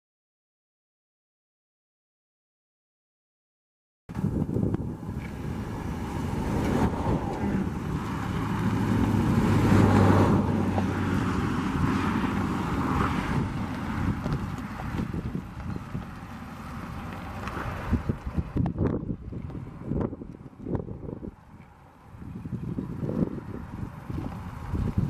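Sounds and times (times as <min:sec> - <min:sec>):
pickup truck engine running: 0:04.1 - 0:20.1
wind buffeting microphone: 0:04.1 - 0:25.0.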